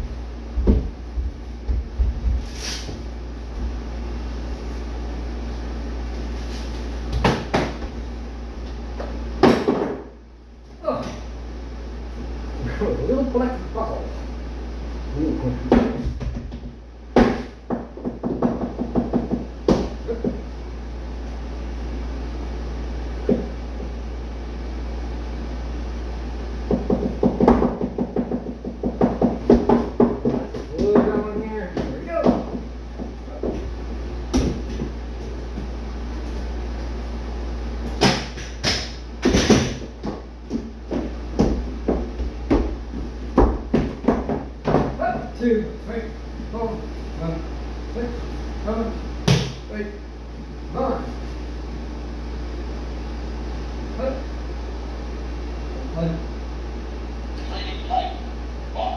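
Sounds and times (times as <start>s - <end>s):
steady low hum: 0.0s - 58.9s
sharp knocks on wooden floor: 0.6s - 2.4s, 15.7s - 20.4s, 26.7s - 33.7s, 38.0s - 45.0s.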